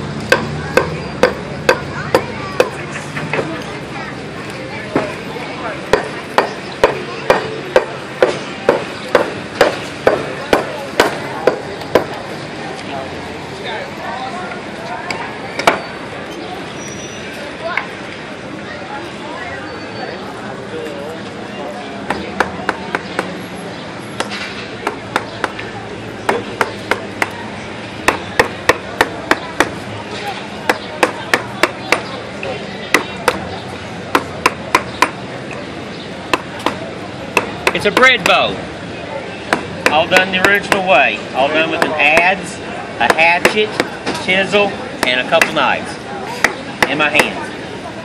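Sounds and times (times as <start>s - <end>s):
hammer striking chisel into wood: 5.9s - 12.1s
mallet striking chisel: 41.8s - 42.3s.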